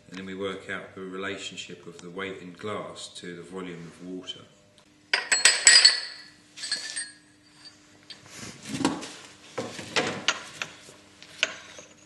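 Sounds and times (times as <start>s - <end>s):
glass pieces clinking: 5.2s - 7.8s.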